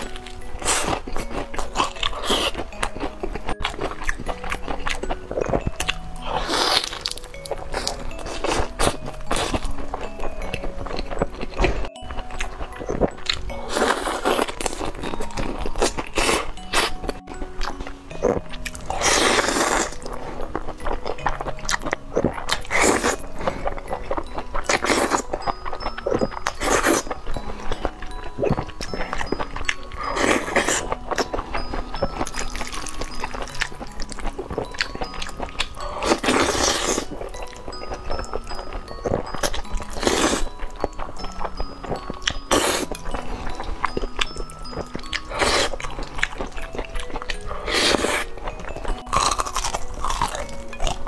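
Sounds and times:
light background music: 0.0 - 51.0
wet chewing: 0.0 - 51.0
noodle slurping: 6.2 - 9.8, 18.8 - 20.5, 34.4 - 37.3, 47.2 - 48.4.

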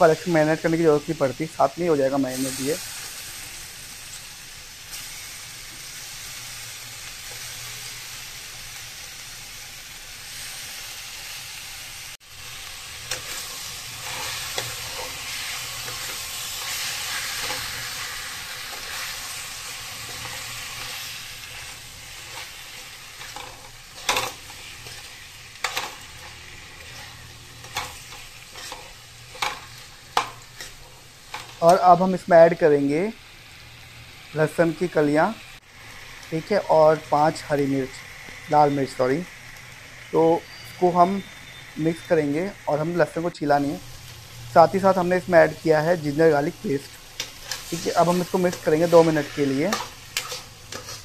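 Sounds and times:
chicken and onions sizzling in pan: 0.0 - 51.0.

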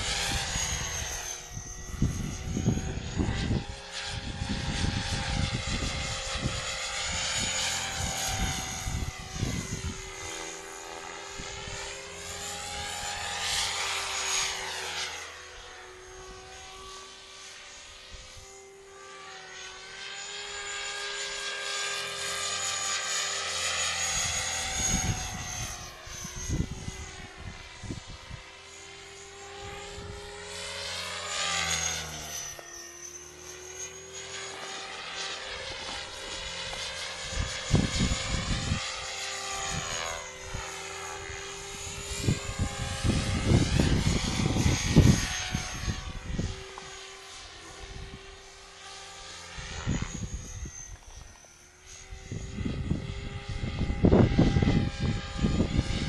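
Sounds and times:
wind buffeting microphone: 0.0 - 10.5, 24.1 - 28.5, 35.9 - 46.9, 49.5 - 51.0, 52.0 - 56.0
model helicopter rotor whine: 0.0 - 56.0.

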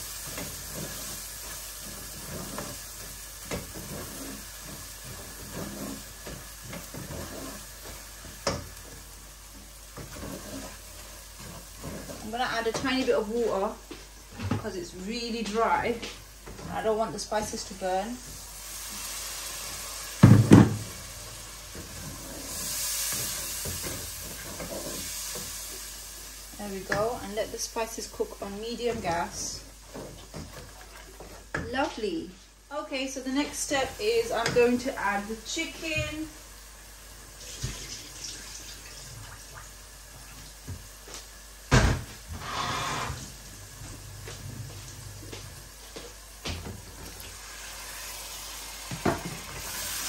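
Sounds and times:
wooden spatula stirring: 0.0 - 14.8, 18.2 - 25.8, 28.4 - 31.8
onions and spices sizzling: 0.0 - 50.0.

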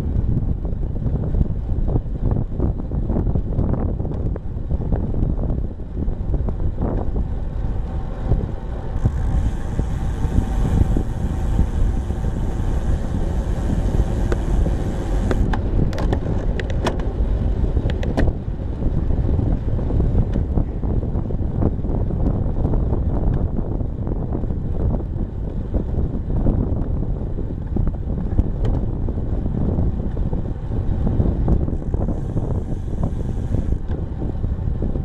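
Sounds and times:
tyre noise on asphalt: 0.0 - 35.0
wind rumbling on microphone: 0.0 - 35.0
sharp clicks and rattles: 9.0 - 17.1.

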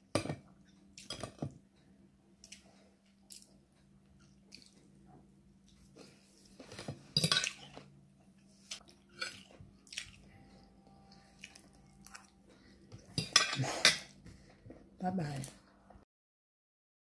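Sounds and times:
chewing: 4.2 - 4.9, 8.7 - 14.1.

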